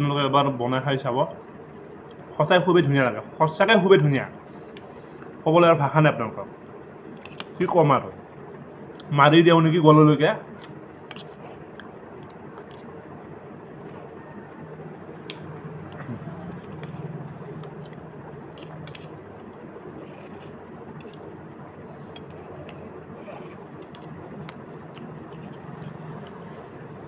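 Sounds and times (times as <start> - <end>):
steady background noise: 0.0 - 27.0
man chewing: 10.5 - 14.6, 15.2 - 27.0.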